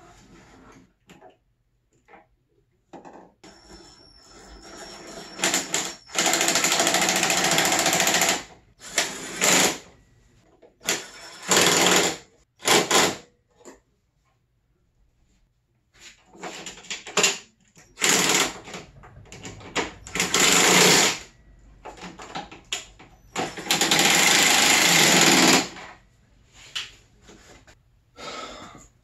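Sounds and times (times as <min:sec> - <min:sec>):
cordless impact driver bursts: 0:23.4 - 0:25.8.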